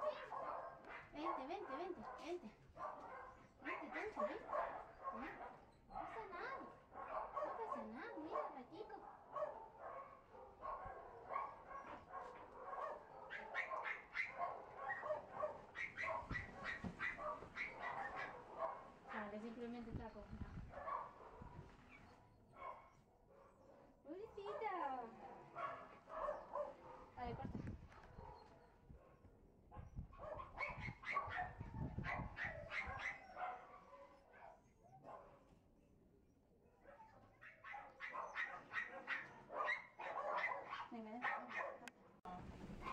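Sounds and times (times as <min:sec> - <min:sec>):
dog barking and yipping: 0:00.0 - 0:19.3, 0:20.7 - 0:23.8, 0:24.4 - 0:27.2, 0:27.9 - 0:28.6, 0:29.8 - 0:35.4, 0:36.9 - 0:41.9, 0:42.7 - 0:42.9
dog whining and yipping: 0:13.4 - 0:18.3, 0:30.6 - 0:33.4.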